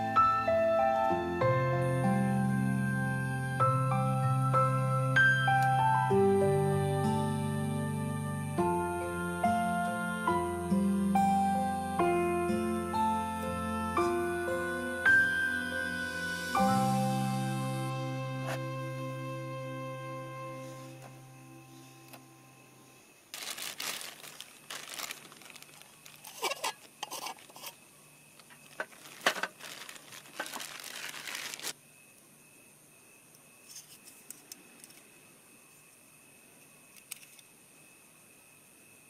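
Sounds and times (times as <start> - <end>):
packaging crinkling and tearing: 23.3 - 27.7, 28.4 - 31.8.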